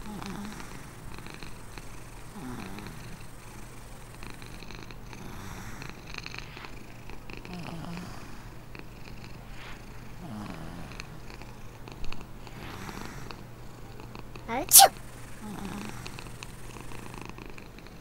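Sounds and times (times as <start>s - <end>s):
cat purring: 0.0s - 14.6s, 15.3s - 18.0s
short wavering low cat sounds: 14.5s - 14.9s.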